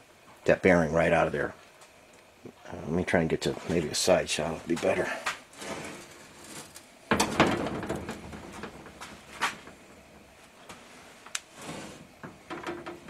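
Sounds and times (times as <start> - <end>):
sharp clicks and knocks: 12.2 - 13.0.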